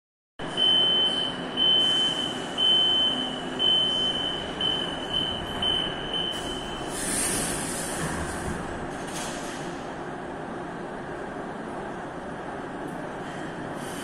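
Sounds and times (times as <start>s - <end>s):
train humming at platform: 0.4s - 14.0s
high steady warning beeps: 0.5s - 7.1s.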